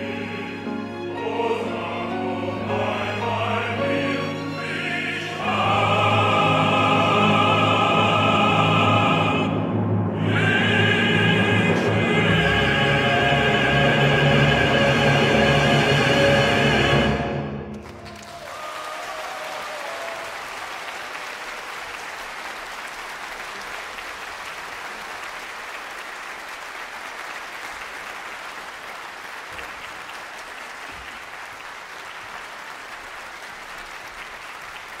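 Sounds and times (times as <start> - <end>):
orchestra and choir chord: 0.0 - 18.3
audience applauding: 17.7 - 35.0.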